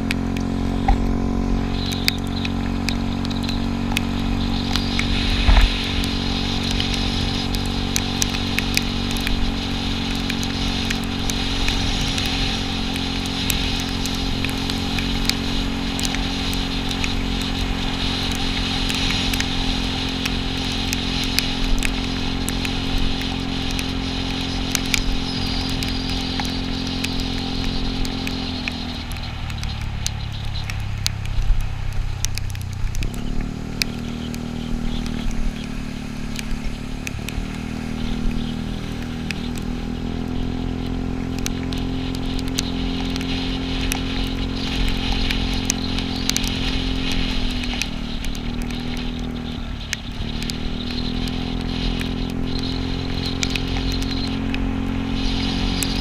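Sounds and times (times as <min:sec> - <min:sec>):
scooter engine running: 0:00.0 - 0:56.0
tyres hissing on wet road: 0:00.0 - 0:56.0.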